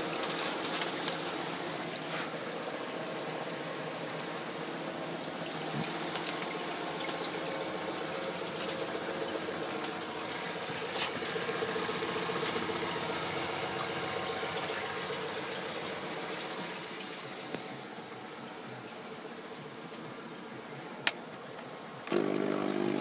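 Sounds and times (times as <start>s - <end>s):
refrigeration compressor humming: 0.0s - 20.3s, 22.1s - 23.0s.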